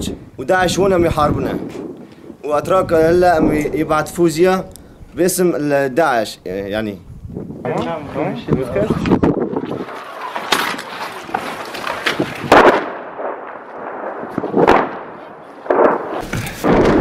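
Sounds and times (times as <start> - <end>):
gunshots with echo: 12.4 - 17.0.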